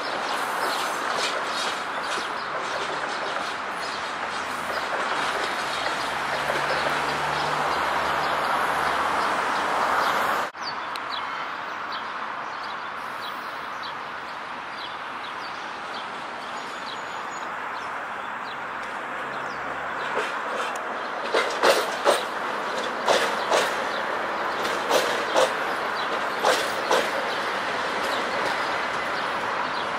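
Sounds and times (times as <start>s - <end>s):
tram rumbling on rails: 0.0s - 11.8s, 14.1s - 29.9s
birds chirping: 0.0s - 29.9s
tram wheels knocking over rail joints: 0.2s - 8.4s, 20.0s - 29.9s.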